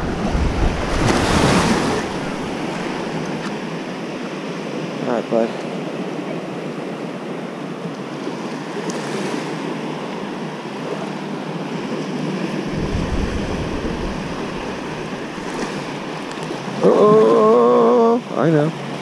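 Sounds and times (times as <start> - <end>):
wind buffeting microphone: 0.0 - 3.6, 12.6 - 16.9
small waves breaking: 0.0 - 19.0.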